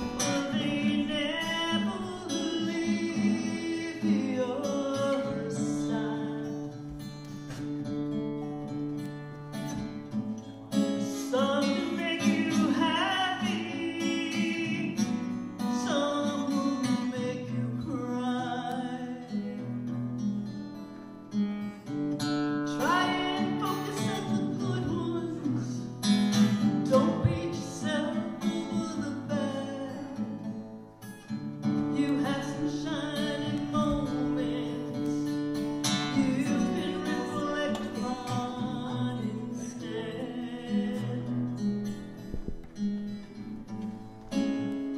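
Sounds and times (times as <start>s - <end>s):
acoustic guitar: 0.0s - 44.9s
woman singing: 22.8s - 26.0s, 26.8s - 30.1s, 32.0s - 35.3s, 36.1s - 41.4s.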